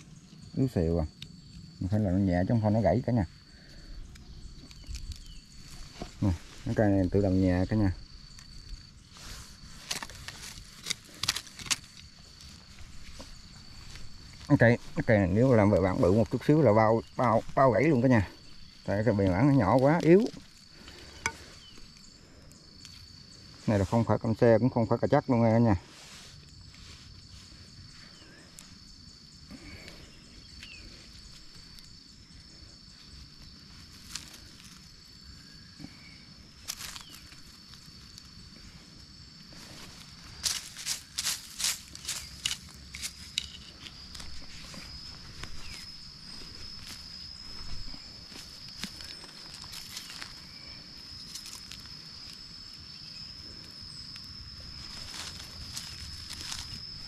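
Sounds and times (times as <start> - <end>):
high-pitched insect trill: 0.0 - 57.0
tool scraping dry soil: 8.2 - 16.4, 39.5 - 52.2.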